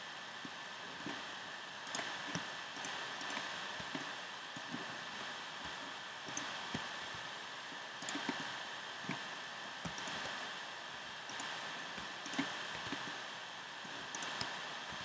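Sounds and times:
faint high whine: 0.0s - 15.0s
steady hiss: 0.0s - 15.0s
computer keys and mouse clicks: 1.8s - 6.9s, 8.0s - 8.5s, 9.8s - 10.4s, 11.3s - 13.2s, 14.1s - 15.0s.

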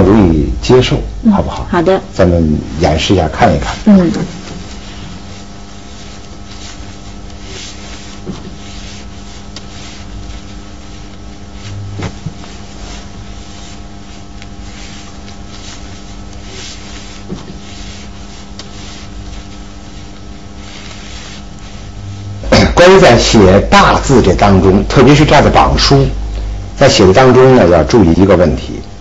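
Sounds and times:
steady electrical hum: 0.0s - 29.0s
brush dragging across paper: 2.7s - 22.4s.

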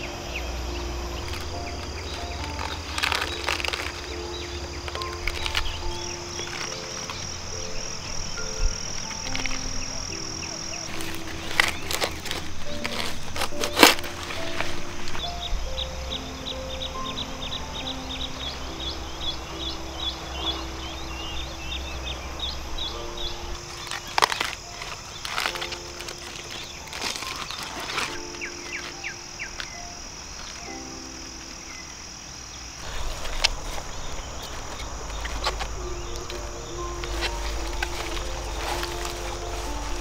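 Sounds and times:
birds chirping: 0.0s - 40.0s
soft background music: 0.0s - 40.0s
knife cutting lettuce: 10.9s - 14.8s.

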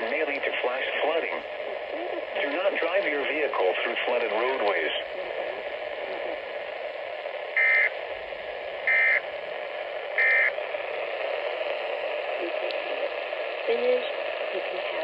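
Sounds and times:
radio static hiss: 0.0s - 15.0s
short data bursts: 7.5s - 8.0s, 8.8s - 9.3s, 10.1s - 10.6s.

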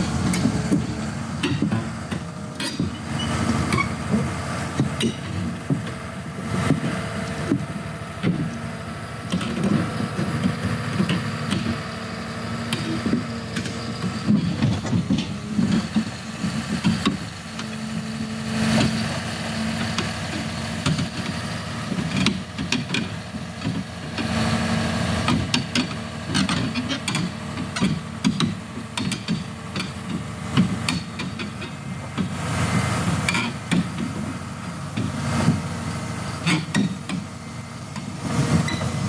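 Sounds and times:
bulldozer diesel engine running: 0.0s - 39.0s.

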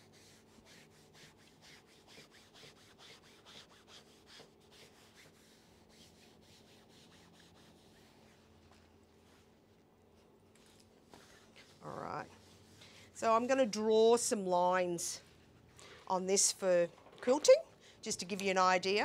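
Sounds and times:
hand iron rubbing over fabric: 0.0s - 9.6s, 10.6s - 15.6s.

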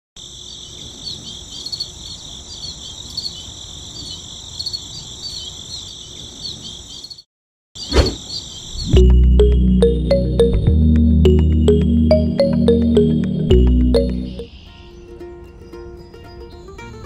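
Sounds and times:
crickets chirping: 0.2s - 7.2s, 7.8s - 9.0s.

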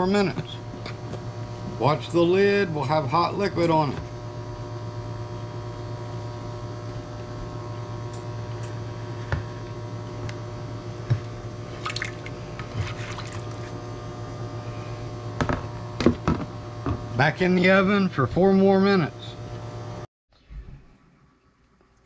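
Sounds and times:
low electrical hum: 0.0s - 22.0s
liquid splashing into dish: 11.8s - 13.8s.

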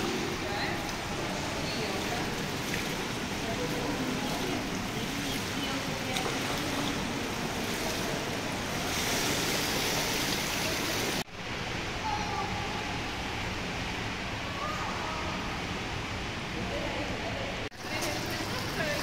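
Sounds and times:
steady water noise: 0.0s - 19.0s.

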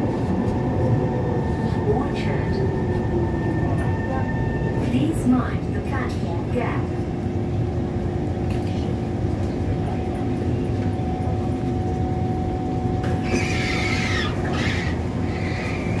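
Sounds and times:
stopped train humming: 0.0s - 16.0s
train doors opening with squeal: 13.1s - 14.8s.

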